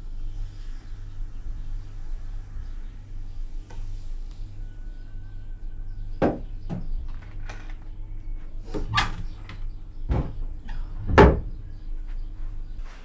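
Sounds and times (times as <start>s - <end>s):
cupboard doors knocking: 11.1s - 11.5s.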